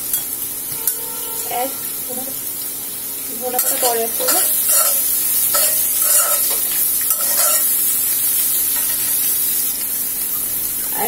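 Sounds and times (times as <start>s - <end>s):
frying sizzle: 0.0s - 11.0s
spatula scraping metal pan: 3.5s - 7.8s.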